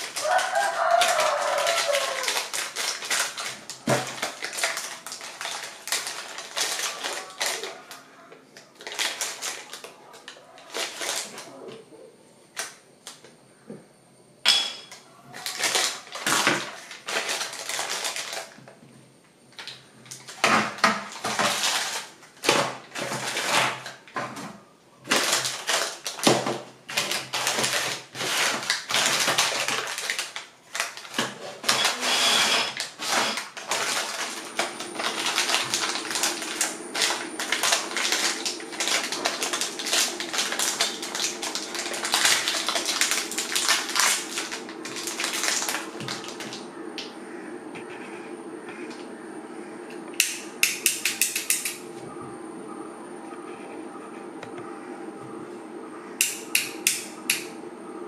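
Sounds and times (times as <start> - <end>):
plastic packaging crinkling: 0.0 - 11.6, 15.3 - 18.8, 19.5 - 24.2, 25.0 - 47.1.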